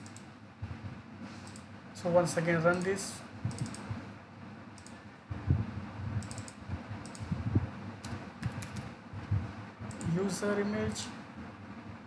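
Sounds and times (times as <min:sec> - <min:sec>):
computer mouse and keyboard clicks: 0:00.0 - 0:00.3, 0:01.4 - 0:01.7, 0:02.7 - 0:03.9, 0:04.8 - 0:05.0, 0:06.2 - 0:07.4, 0:08.0 - 0:08.9, 0:09.9 - 0:10.2.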